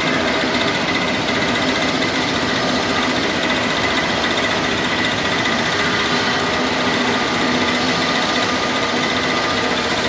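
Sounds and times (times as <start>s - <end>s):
jet engines roaring with whine: 0.0s - 10.0s.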